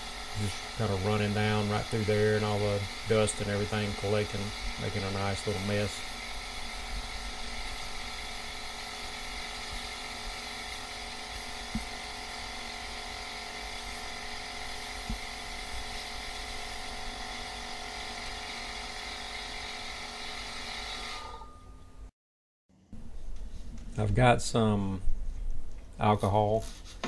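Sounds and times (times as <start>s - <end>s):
air compressor running: 0.0s - 21.4s.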